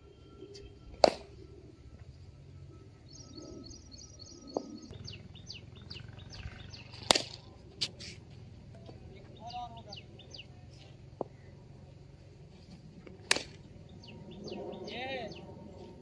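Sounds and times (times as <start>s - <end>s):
birds chirping and whistling: 0.0s - 8.3s, 8.9s - 11.6s, 13.6s - 16.0s
cricket bat striking ball: 1.0s - 1.3s, 13.2s - 13.6s.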